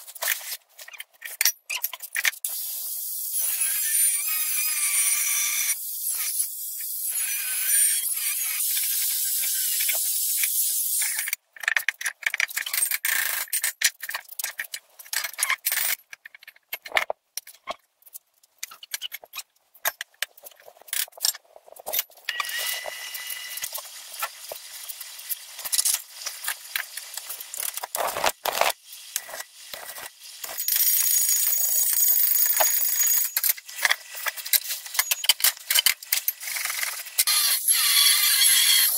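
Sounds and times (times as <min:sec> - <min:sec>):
angle grinder cutting steel: 0:37.2 - 0:38.9.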